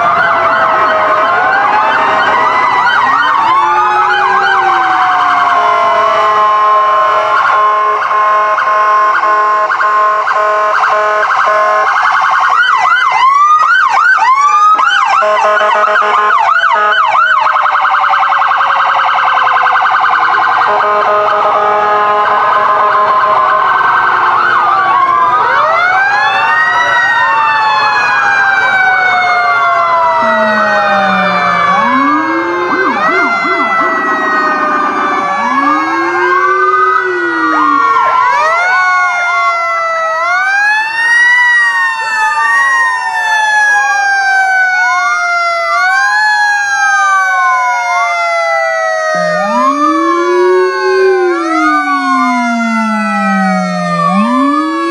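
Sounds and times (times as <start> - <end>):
fire truck sirens wailing: 0.0 - 54.9.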